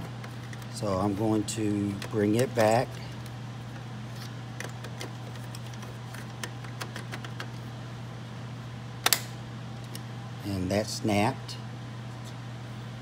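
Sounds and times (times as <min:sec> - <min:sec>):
steady low hum: 0:00.0 - 0:13.0
plastic parts clicking and tapping: 0:04.6 - 0:07.5.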